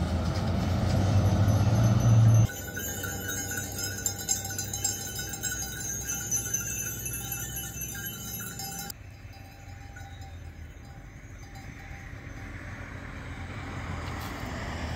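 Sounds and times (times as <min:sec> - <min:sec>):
small metal bells jingling: 0:01.2 - 0:13.1.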